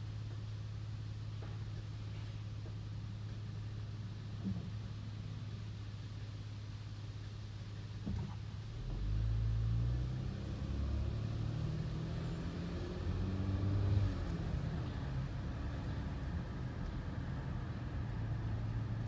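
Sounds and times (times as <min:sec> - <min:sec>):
diesel truck engine idling and revving: 0:08.7 - 0:19.0.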